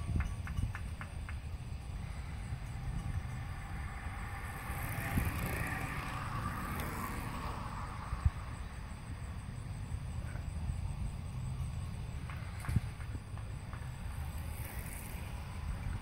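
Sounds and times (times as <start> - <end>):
bicycle tyres whirring past: 0.0 - 16.0
low rumble: 1.7 - 11.7.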